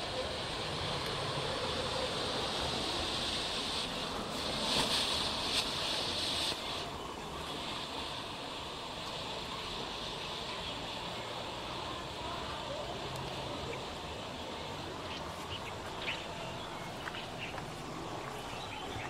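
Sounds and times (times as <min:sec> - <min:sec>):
smoke grenade hissing: 0:00.5 - 0:12.6.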